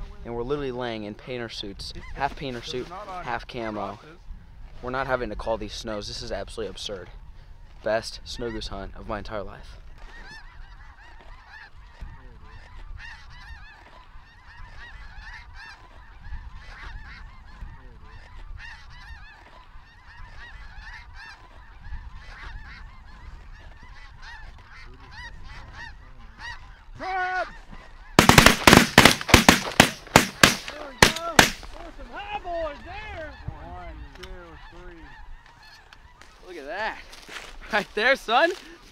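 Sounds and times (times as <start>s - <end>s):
snow geese honking: 10.0s - 38.9s
shotgun blasts: 28.2s - 31.8s.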